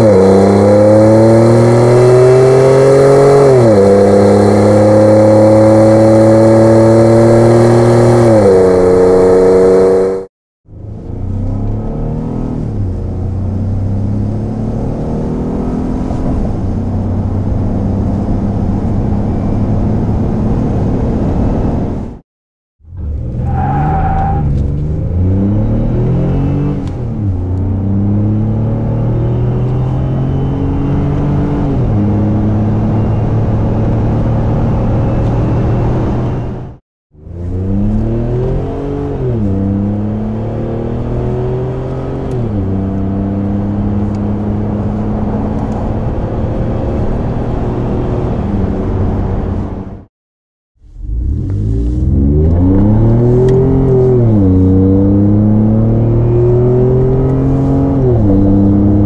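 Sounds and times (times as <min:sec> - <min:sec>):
pickup engine accelerating: 0:50.9 - 0:59.0.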